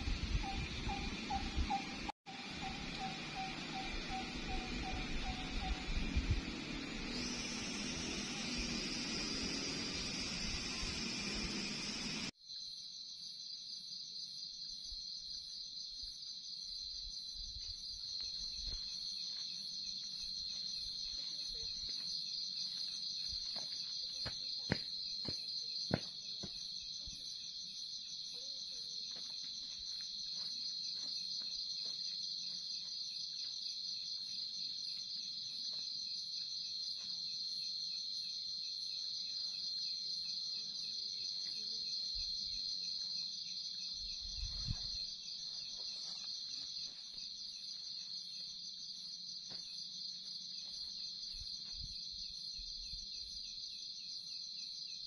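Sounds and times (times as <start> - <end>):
night insects trilling: 0.0 - 55.0
higher pulsing chirp: 0.3 - 12.3.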